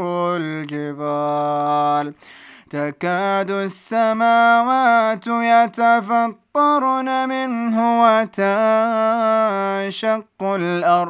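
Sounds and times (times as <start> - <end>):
man reciting melodically: 0.0 - 11.0
short breath: 2.2 - 2.7.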